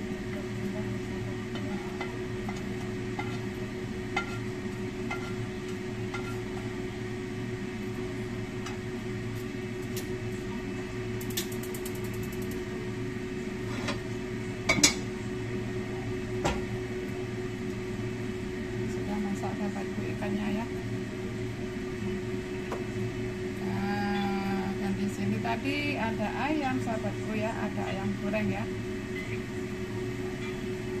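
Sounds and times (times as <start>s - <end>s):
steady hum: 0.0s - 31.0s
wok clattering on burner: 1.5s - 3.5s, 4.1s - 4.5s, 5.1s - 5.4s, 6.1s - 6.4s
gas stove igniter ticking: 11.2s - 12.6s.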